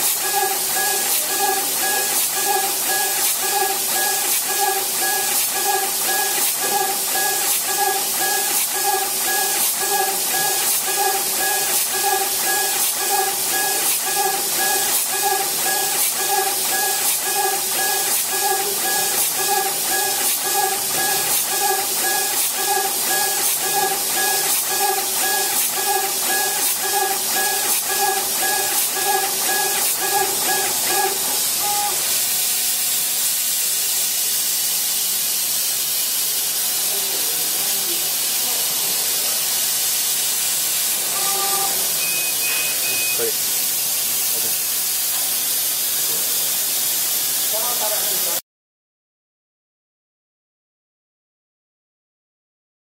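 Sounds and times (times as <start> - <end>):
stepper motors whining: 0.0 - 32.2, 40.7 - 43.5.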